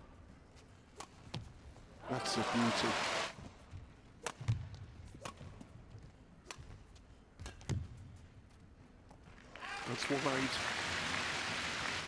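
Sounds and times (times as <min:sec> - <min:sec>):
rackets striking shuttlecock: 0:04.2 - 0:05.7, 0:07.4 - 0:08.0.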